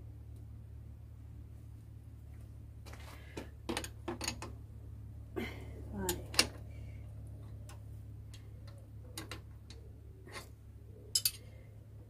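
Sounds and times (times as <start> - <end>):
spanner clicking on metal: 11.1 - 11.4.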